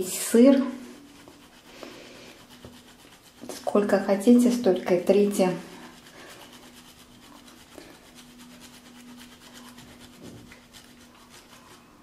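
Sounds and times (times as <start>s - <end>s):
cheese grater scraping: 0.0s - 12.0s.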